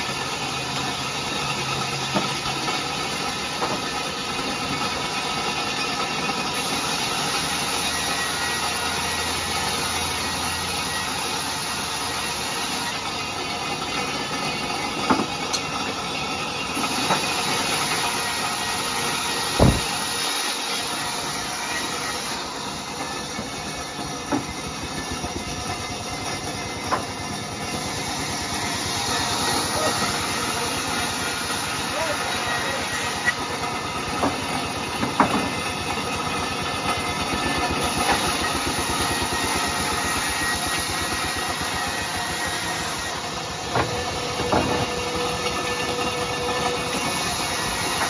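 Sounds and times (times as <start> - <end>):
band saw cutting wood: 0.0 - 48.0
sharp knocks: 19.6 - 20.2.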